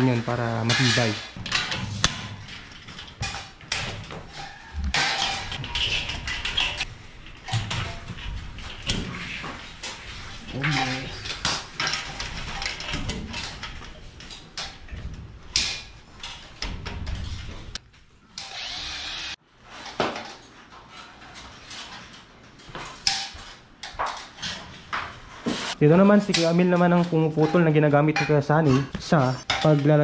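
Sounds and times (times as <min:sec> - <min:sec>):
power drill into metal: 0:18.4 - 0:19.4.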